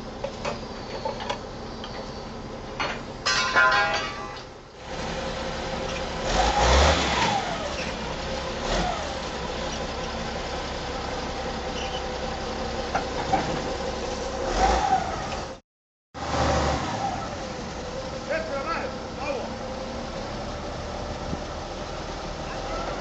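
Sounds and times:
wheel loader diesel engine revving: 4.8s - 15.6s, 16.2s - 23.0s.

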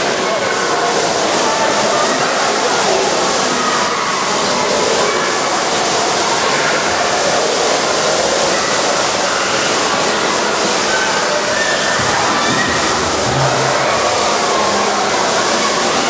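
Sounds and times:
loud rushing hiss: 11.4s - 15.2s.

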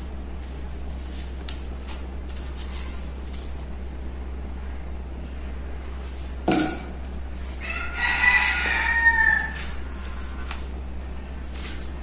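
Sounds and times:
low steady hum: 0.0s - 12.0s
rooster crowing: 7.6s - 10.4s.

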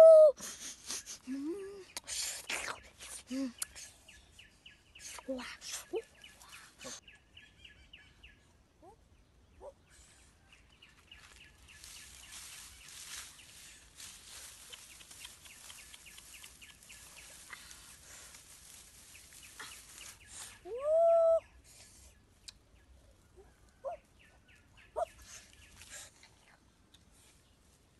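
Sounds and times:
dry grass rustling: 10.6s - 20.7s
rapid even chirping: 14.4s - 17.7s.

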